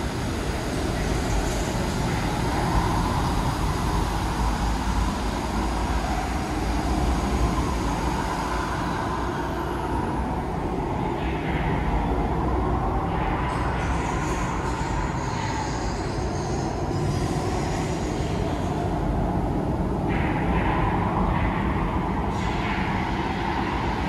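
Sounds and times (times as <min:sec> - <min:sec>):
water ride rumble and rushing: 0:00.0 - 0:15.4.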